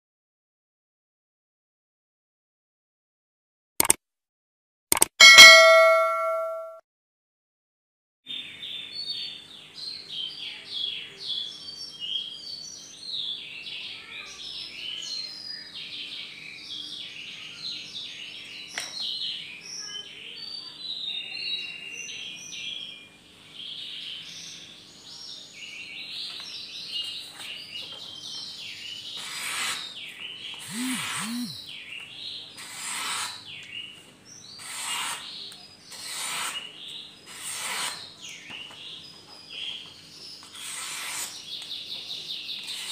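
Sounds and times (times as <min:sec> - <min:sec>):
small birds chirping: 0:08.3 - 0:42.9
harsh rasping sounds: 0:29.2 - 0:29.9, 0:30.6 - 0:31.6, 0:32.6 - 0:33.4, 0:35.9 - 0:36.7, 0:37.3 - 0:38.1, 0:40.6 - 0:41.4.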